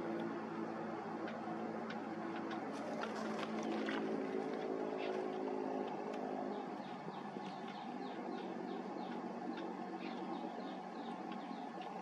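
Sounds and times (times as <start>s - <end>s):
distant engine hum: 0.0s - 12.0s
nestlings begging chirps: 5.9s - 12.0s.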